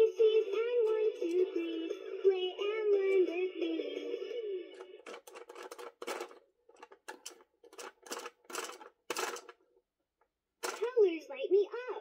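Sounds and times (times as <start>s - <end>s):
plastic toy clicks and knocks: 4.8s - 9.6s, 10.6s - 11.0s.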